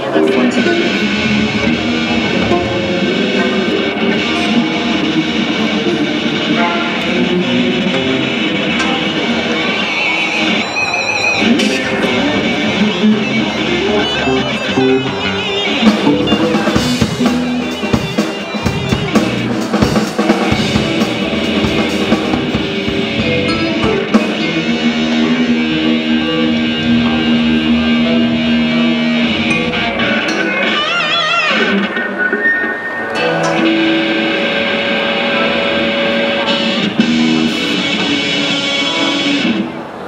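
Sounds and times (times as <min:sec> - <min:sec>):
bass guitar: 0:00.0 - 0:32.2, 0:33.1 - 0:39.9
electric guitar: 0:00.0 - 0:40.0
drum kit hits: 0:15.8 - 0:26.0.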